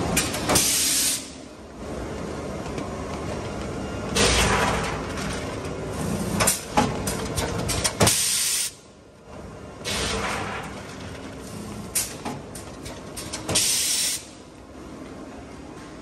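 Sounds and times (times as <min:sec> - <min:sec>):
pneumatic air hiss: 0:13.5 - 0:14.3.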